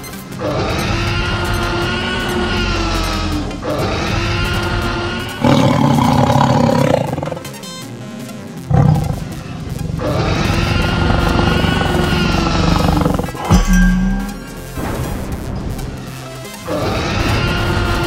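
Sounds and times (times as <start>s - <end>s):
background music: 0.0s - 18.0s
big cat roaring: 0.4s - 7.6s, 8.7s - 14.6s.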